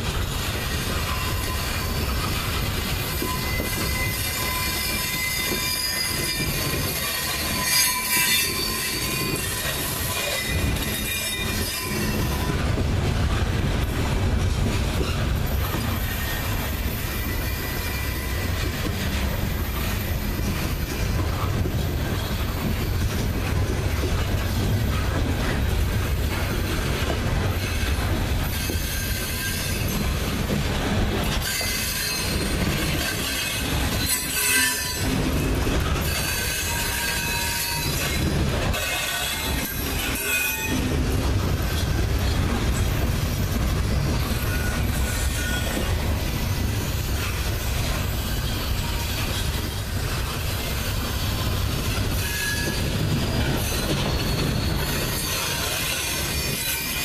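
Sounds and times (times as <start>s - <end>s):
train wheels rumbling on rails: 0.0s - 57.0s
wheel flange squeal: 3.1s - 12.6s, 50.6s - 57.0s.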